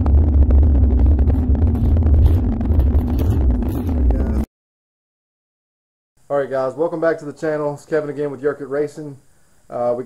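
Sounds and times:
loud low rumble: 0.0 - 4.5.

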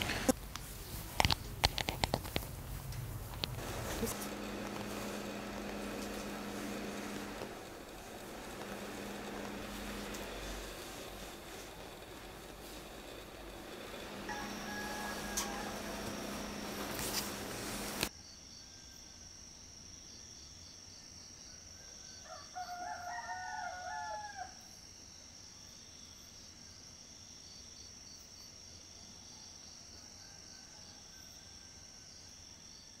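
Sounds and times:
hissing noise with clicks: 0.0 - 18.1
rooster crowing: 3.6 - 18.1, 22.2 - 24.6.

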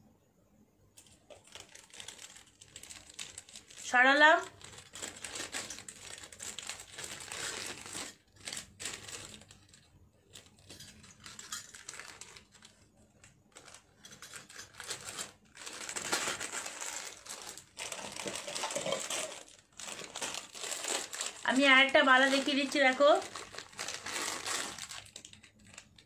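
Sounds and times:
packaging rustling and crinkling: 1.0 - 26.0.

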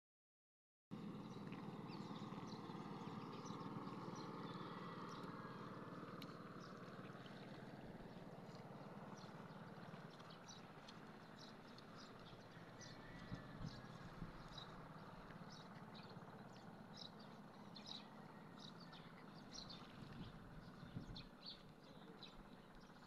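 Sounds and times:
distant motor drone: 0.9 - 23.0.

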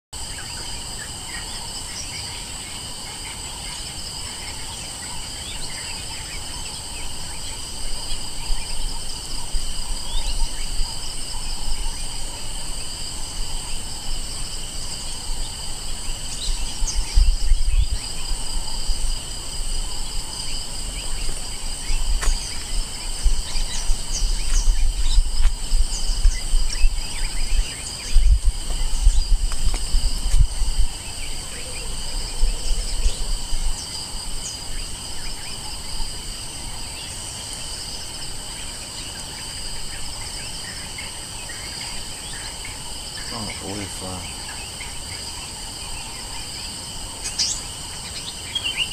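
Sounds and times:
insects buzzing: 0.2 - 48.9
bird chirps: 19.9 - 29.4.

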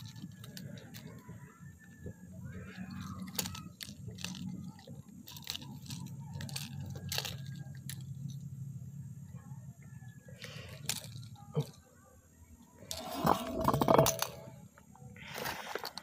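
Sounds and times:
handling clicks and scrapes: 0.0 - 8.4, 10.4 - 11.8, 12.8 - 14.6, 15.2 - 16.0
low steady rumble: 0.0 - 15.2.

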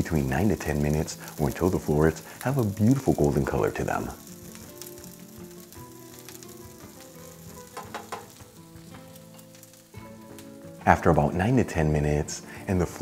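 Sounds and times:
vegetables sizzling in oil: 0.0 - 10.8
wooden spoon scraping and knocking: 7.8 - 8.4.

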